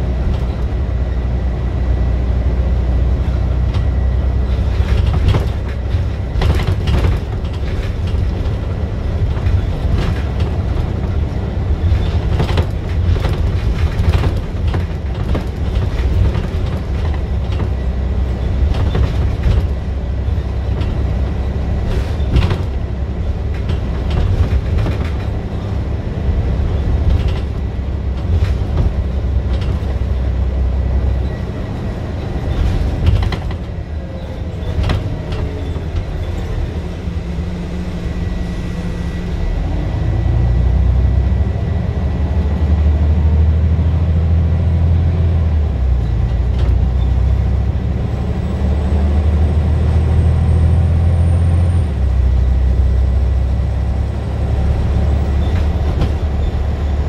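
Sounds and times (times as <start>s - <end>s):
bus body rattles and knocks: 0.0s - 57.0s
bus diesel engine running: 0.0s - 57.0s.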